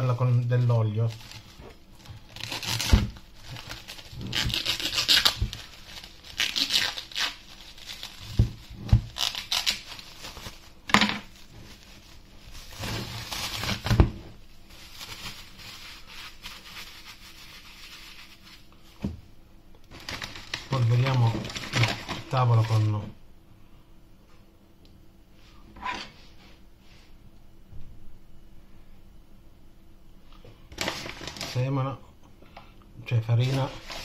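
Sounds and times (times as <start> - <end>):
cling film crinkling: 0.0 - 14.0, 14.7 - 18.6, 19.9 - 22.9, 33.3 - 34.0.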